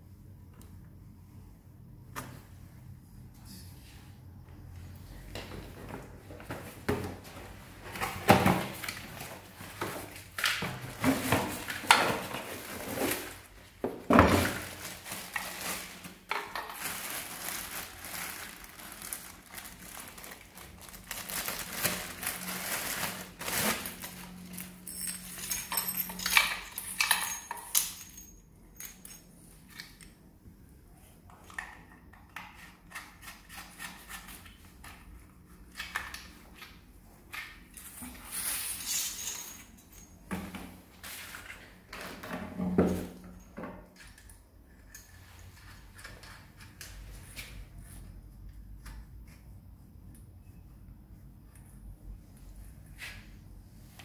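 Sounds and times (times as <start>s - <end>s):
plastic packaging rustling: 6.4s - 26.3s
metal clinks and knocks: 24.6s - 29.3s.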